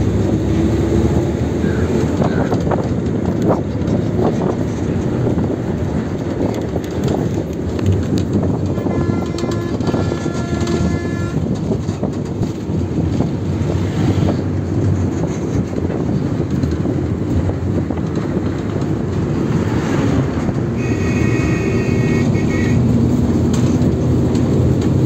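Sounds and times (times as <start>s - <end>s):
vehicle wind and road noise: 0.0s - 25.0s
multi-tone horn: 8.7s - 11.5s, 20.8s - 22.9s.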